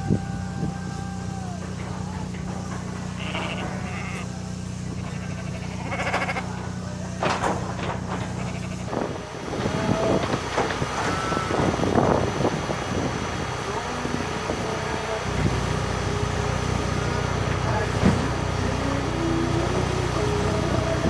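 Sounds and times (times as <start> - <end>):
low motor hum: 0.0 - 21.0
sheep bleating: 1.4 - 6.7, 8.2 - 9.0
knocks and rattles: 7.2 - 8.4.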